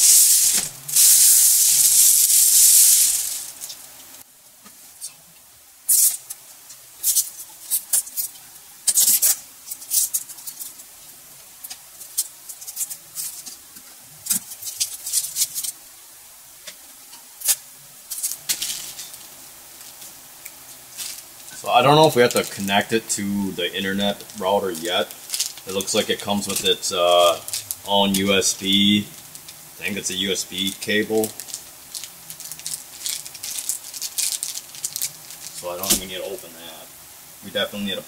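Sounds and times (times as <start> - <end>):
packing material crinkling: 0.0 - 3.8, 14.2 - 15.8, 17.4 - 20.1, 20.9 - 36.4
plastic bag rustling: 0.0 - 3.9, 18.1 - 20.2, 20.9 - 36.5.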